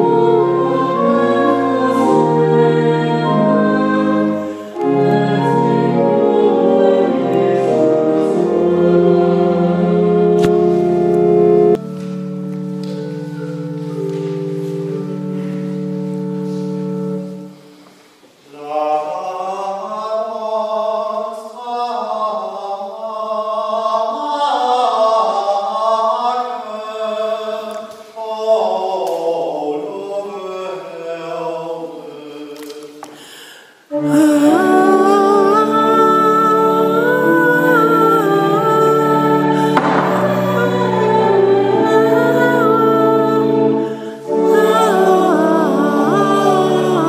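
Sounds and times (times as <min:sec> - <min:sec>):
voices singing unaccompanied: 0:00.0 - 0:10.6, 0:33.9 - 0:47.0
church organ chords: 0:00.0 - 0:17.8, 0:33.9 - 0:47.0.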